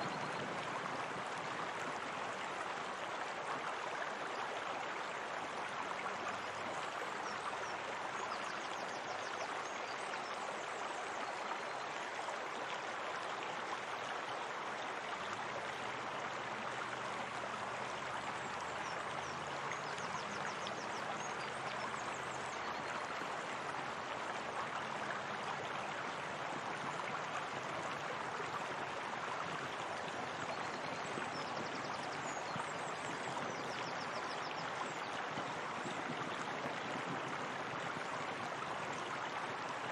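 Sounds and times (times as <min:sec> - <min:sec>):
flowing water rushing: 0:00.0 - 0:39.9.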